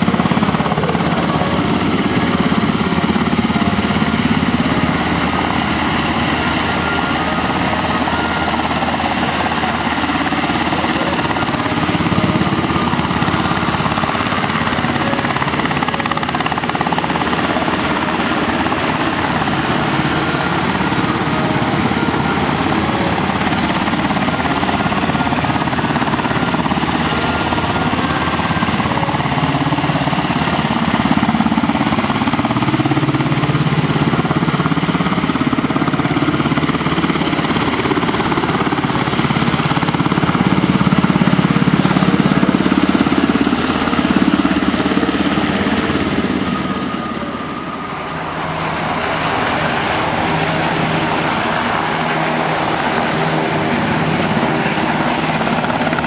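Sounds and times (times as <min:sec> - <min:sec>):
helicopter rotor chopping: 0:00.0 - 0:56.0
turbine noise: 0:00.0 - 0:56.0.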